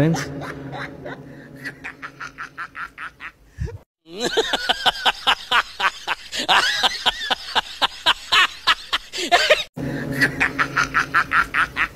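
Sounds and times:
low steady hum: 0:00.0 - 0:04.7, 0:09.8 - 0:11.9.

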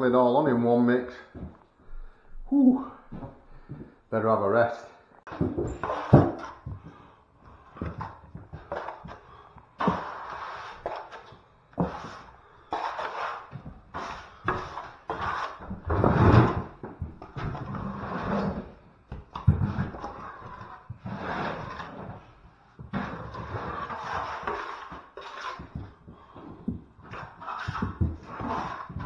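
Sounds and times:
trowel scraping plaster: 0:05.3 - 0:06.7, 0:07.6 - 0:29.0.

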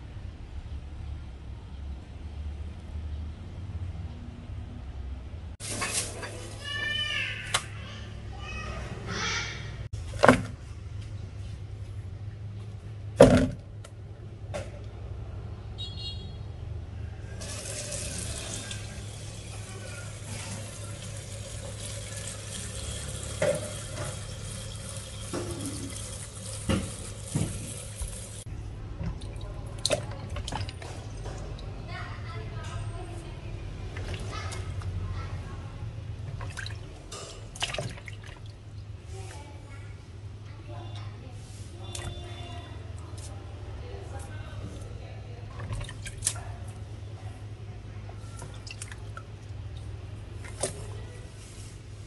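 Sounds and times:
water splashing and sloshing: 0:05.6 - 0:07.7, 0:17.4 - 0:32.4, 0:33.6 - 0:39.6, 0:44.1 - 0:52.0
tap water pouring into basin: 0:17.4 - 0:31.6
water splashes: 0:36.3 - 0:38.7, 0:48.3 - 0:51.3.

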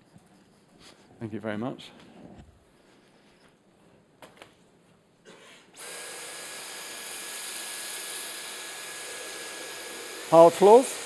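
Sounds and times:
cordless vacuum whining on carpet: 0:05.8 - 0:11.0.

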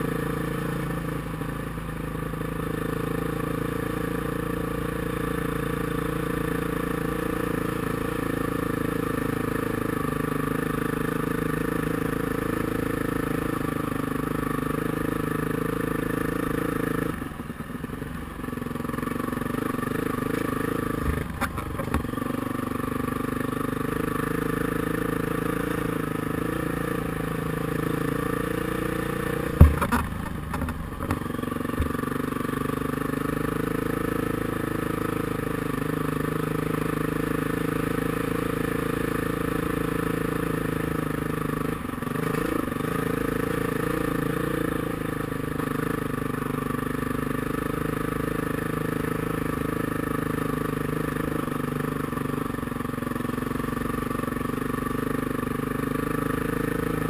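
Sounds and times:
dirt bike engine running: 0:00.0 - 0:57.0
sharp loud knock: 0:29.5 - 0:31.2.

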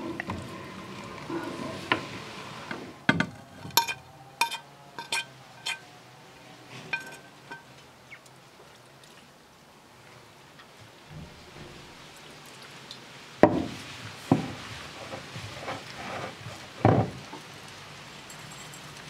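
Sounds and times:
metal spoon scraping a plate: 0:03.7 - 0:05.8.

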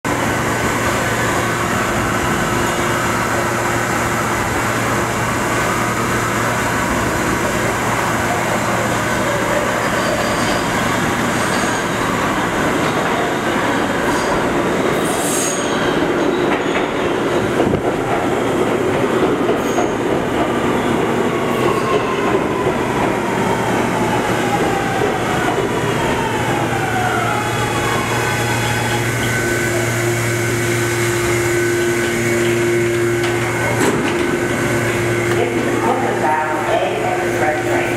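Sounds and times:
train wheels rumbling on rails: 0:00.1 - 0:37.9
high wheel squeal: 0:15.0 - 0:16.8.

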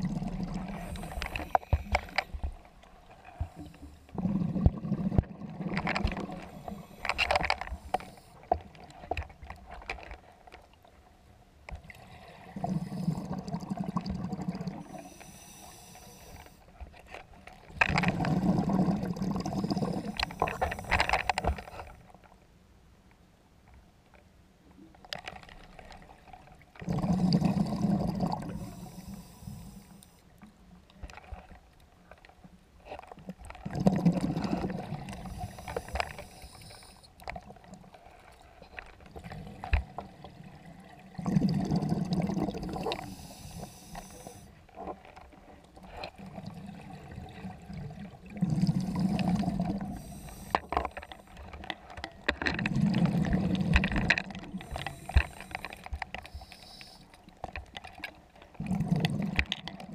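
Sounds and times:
exhaled bubbles underwater: 0:00.0 - 0:02.5, 0:03.4 - 0:07.1, 0:12.3 - 0:15.6, 0:17.8 - 0:20.9, 0:26.8 - 0:29.1, 0:33.6 - 0:36.1, 0:39.2 - 0:44.4, 0:46.2 - 0:50.6, 0:52.5 - 0:56.9, 0:58.5 - 0:59.9
regulator inhalation hiss: 0:14.9 - 0:16.6, 0:28.5 - 0:30.2, 0:35.2 - 0:37.1, 0:43.0 - 0:44.5, 0:49.9 - 0:50.7, 0:54.6 - 0:57.1.

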